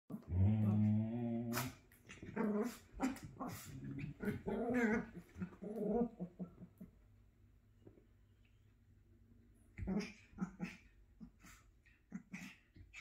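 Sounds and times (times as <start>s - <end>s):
small dogs growling: 0.1s - 6.9s, 9.8s - 13.0s.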